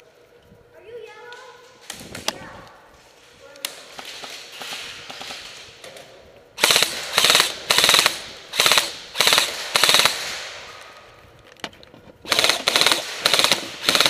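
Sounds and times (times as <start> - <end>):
airsoft gun full-auto bursts: 6.6 - 10.8, 12.2 - 14.0.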